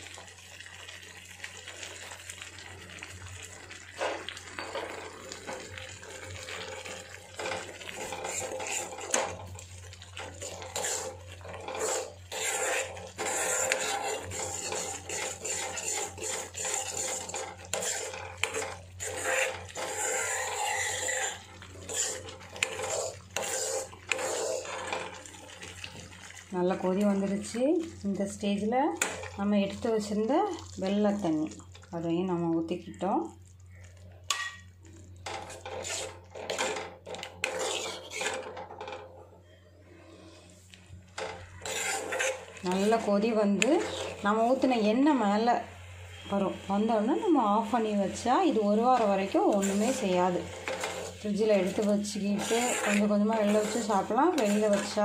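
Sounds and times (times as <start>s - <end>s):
metal ladle scraping iron pot: 6.9s - 9.6s, 10.2s - 25.2s, 34.3s - 34.6s, 35.2s - 39.6s, 41.1s - 44.2s, 48.5s - 55.0s.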